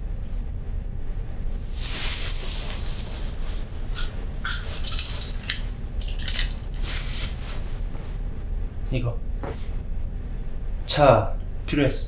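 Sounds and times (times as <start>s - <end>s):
low room hum: 0.0s - 12.0s
soft rustling: 1.5s - 5.8s, 6.6s - 8.5s.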